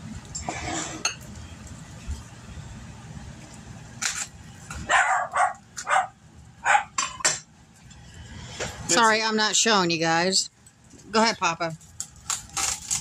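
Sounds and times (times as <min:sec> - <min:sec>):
dog barking: 0:04.9 - 0:07.0.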